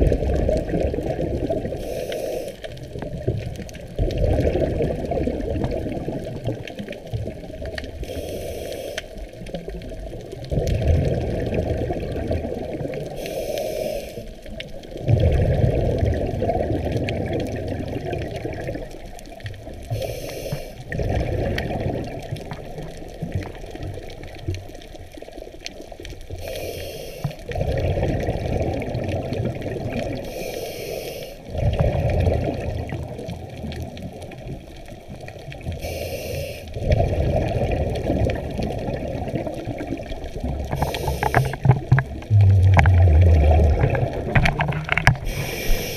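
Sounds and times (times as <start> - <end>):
exhaled bubbles rumbling: 0.0 - 2.0, 2.7 - 8.2, 9.1 - 13.3, 14.2 - 20.1, 20.8 - 26.5, 27.3 - 30.4, 31.4 - 35.9, 36.6 - 45.9
regulator inhale hiss: 1.7 - 2.8, 8.0 - 9.3, 13.1 - 14.4, 19.9 - 20.9, 26.3 - 27.5, 30.2 - 31.5, 35.7 - 36.8, 40.7 - 41.7, 45.2 - 45.9.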